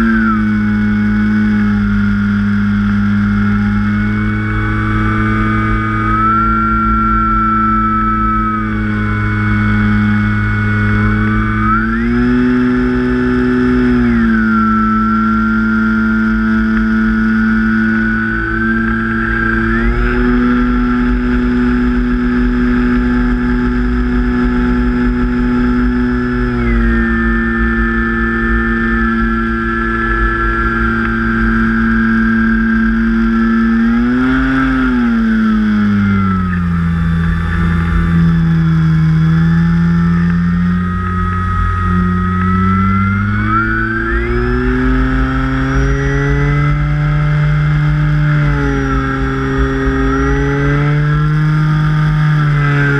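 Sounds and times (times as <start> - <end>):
electric motor and propeller whine: 0.0 - 52.9
low wind rumble: 0.0 - 52.9.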